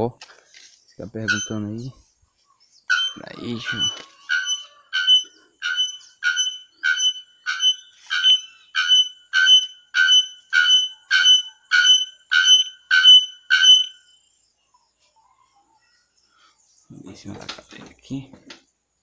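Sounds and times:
bellbird ringing metallic calls: 1.2s - 1.9s, 2.9s - 14.2s.

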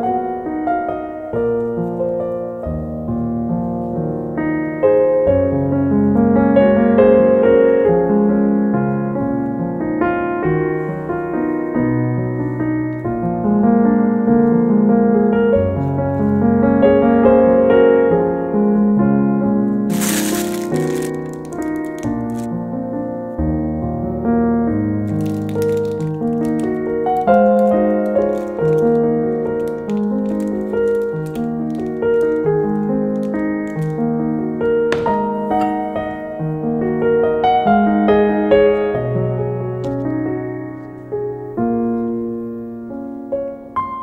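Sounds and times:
slow piano music: 0.0s - 44.0s.

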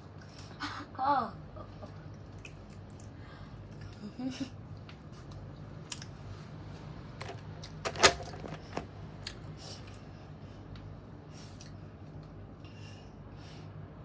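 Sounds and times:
steady low hum: 0.0s - 14.0s
child chewing crisp snack: 2.0s - 4.0s, 5.1s - 6.2s.

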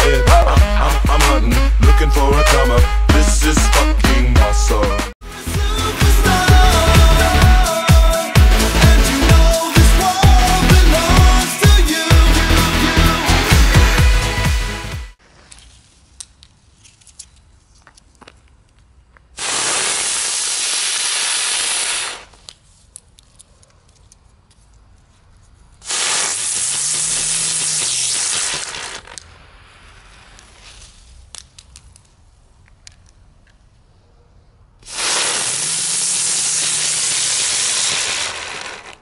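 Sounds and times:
firework crackles: 19.3s - 22.6s, 25.8s - 32.5s, 34.8s - 39.0s
fireworks hissing bursts: 19.4s - 22.5s, 25.8s - 31.3s, 34.8s - 39.0s.

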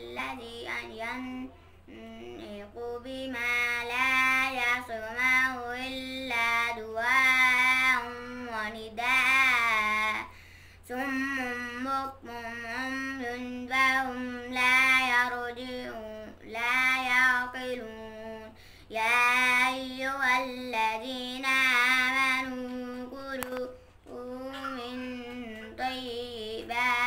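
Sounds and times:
boy chanting recitation: 0.0s - 27.0s.

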